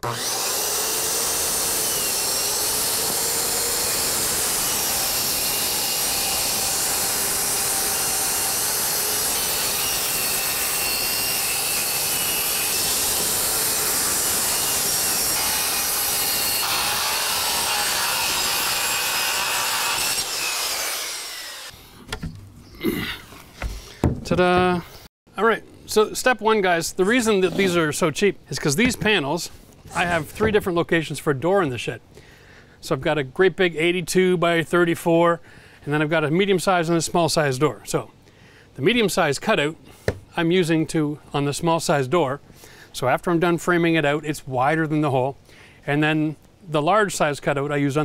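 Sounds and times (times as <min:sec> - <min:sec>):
circular saw cutting wood: 0:00.0 - 0:21.8.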